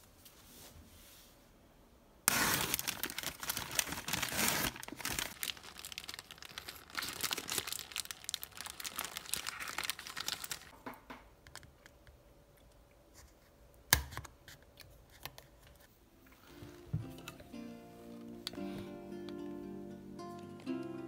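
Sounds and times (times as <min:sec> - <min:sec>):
paper bag crinkling and rustling: 0:02.3 - 0:10.8.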